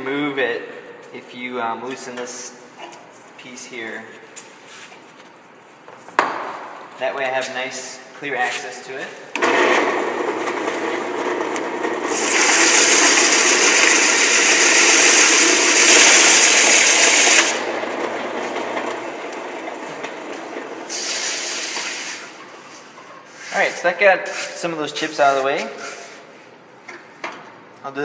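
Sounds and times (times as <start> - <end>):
sandpaper rasping on spinning foam: 12.1 - 17.6.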